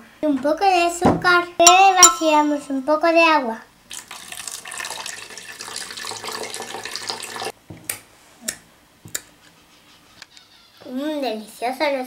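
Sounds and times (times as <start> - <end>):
water pouring into plastic jar: 3.9 - 7.5.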